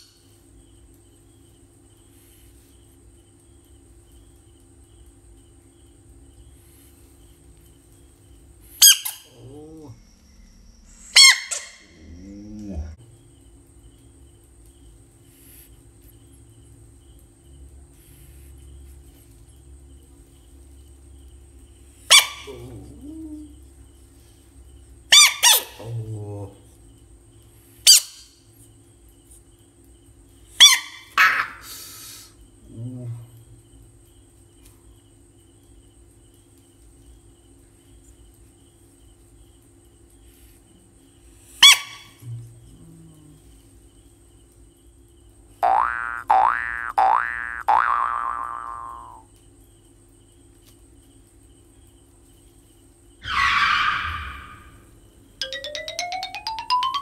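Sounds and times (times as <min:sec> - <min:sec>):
crickets chirring: 0:00.0 - 0:57.0
low buzzing frog croak: 0:08.8 - 0:13.3, 0:41.5 - 0:44.0, 0:45.5 - 0:49.4
frog screaming: 0:11.0 - 0:12.8, 0:25.1 - 0:26.2, 0:30.6 - 0:31.7, 0:41.6 - 0:42.2, 0:45.7 - 0:49.3, 0:53.2 - 0:54.9.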